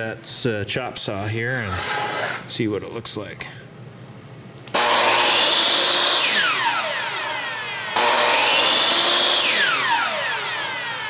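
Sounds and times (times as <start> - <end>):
chop saw motor whining: 4.8 - 11.0.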